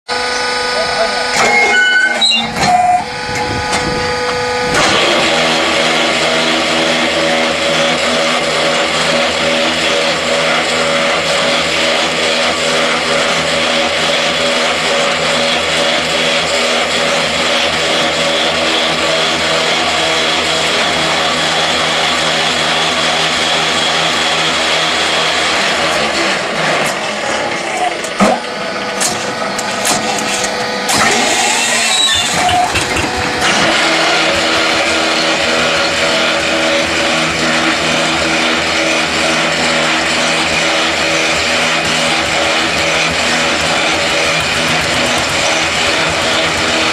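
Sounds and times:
machine mechanical hum: 0:00.1 - 0:46.9
sharp machine knocks: 0:29.0 - 0:37.3, 0:39.8 - 0:46.9.

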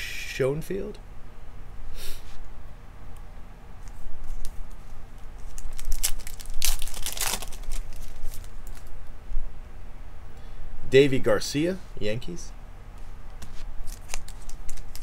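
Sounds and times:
trading cards rustling: 0:03.8 - 0:08.9, 0:13.4 - 0:15.0.

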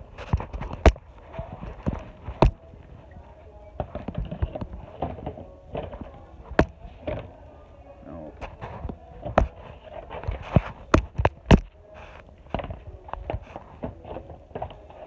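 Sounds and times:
faint background music: 0:00.0 - 0:15.0
phone knocking and rustling: 0:00.2 - 0:02.9, 0:08.4 - 0:15.0.

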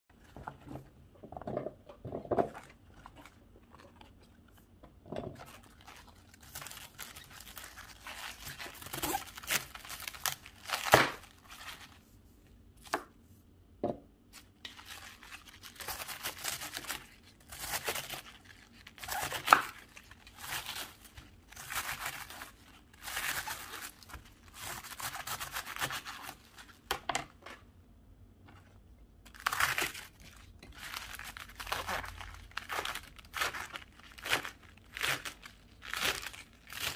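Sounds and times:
cabbage leaves tearing: 0:05.4 - 0:11.9, 0:14.7 - 0:26.6, 0:29.3 - 0:36.9.

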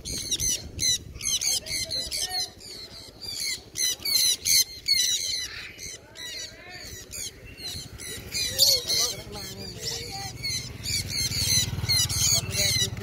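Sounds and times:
parrots screeching: 0:00.0 - 0:13.0.

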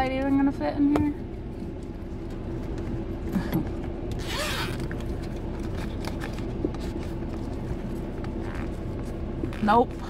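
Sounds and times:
steady low hum: 0:00.0 - 0:10.0
fabric or zipper rasp: 0:04.2 - 0:04.9.

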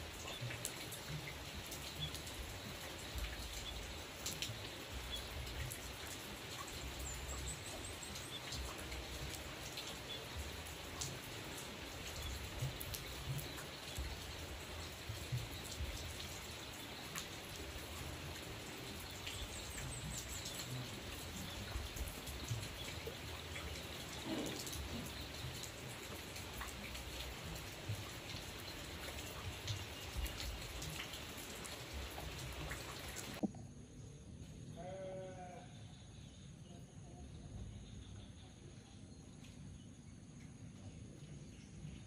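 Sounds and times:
rain falling on leaves: 0:00.0 - 0:33.4.

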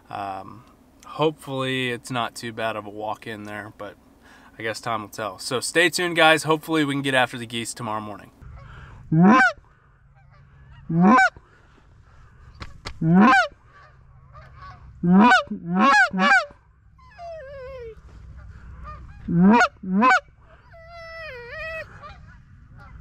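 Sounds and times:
distant goose calls: 0:08.4 - 0:23.0
loud goose honks: 0:08.5 - 0:09.6, 0:10.2 - 0:11.4, 0:13.0 - 0:16.6, 0:18.4 - 0:23.0.

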